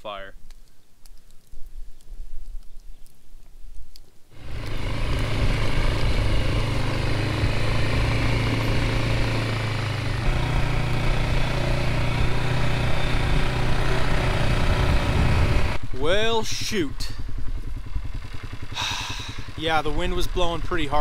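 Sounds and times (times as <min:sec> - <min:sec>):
atv engine running: 0:04.3 - 0:21.0.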